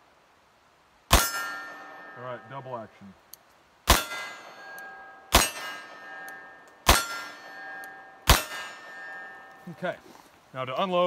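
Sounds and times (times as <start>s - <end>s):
ringing tone after shots: 1.2s - 2.8s, 3.9s - 9.8s.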